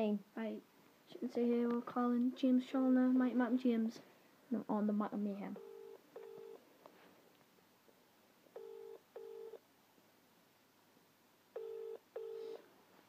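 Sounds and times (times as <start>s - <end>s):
double ringback tone: 11.6s - 12.6s.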